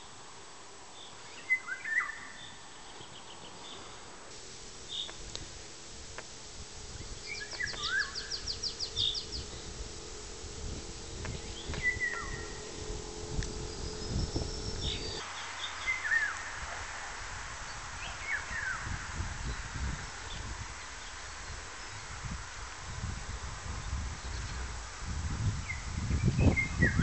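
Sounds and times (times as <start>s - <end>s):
low rumble on microphone: 4.3s - 15.2s, 17.5s - 27.0s
nightingale singing: 4.7s - 16.4s.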